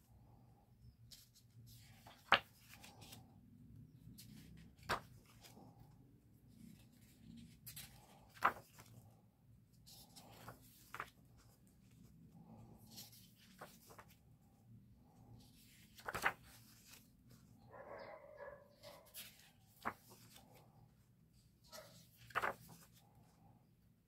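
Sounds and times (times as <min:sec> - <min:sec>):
paper rustling and sliding: 0:01.1 - 0:03.3, 0:04.1 - 0:09.2, 0:09.8 - 0:14.4, 0:15.1 - 0:17.5, 0:18.9 - 0:20.9, 0:21.7 - 0:23.3
page snapping: 0:16.0 - 0:16.4, 0:22.2 - 0:22.7.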